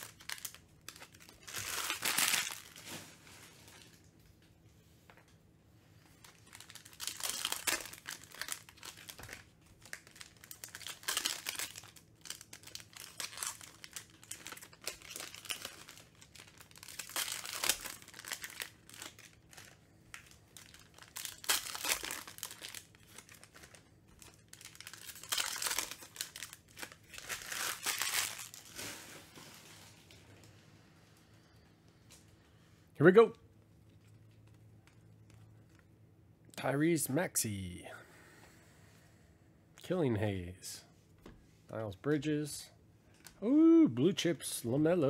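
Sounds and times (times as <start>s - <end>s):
foil wrappers crinkling and tearing: 0.0s - 4.1s, 6.0s - 30.2s.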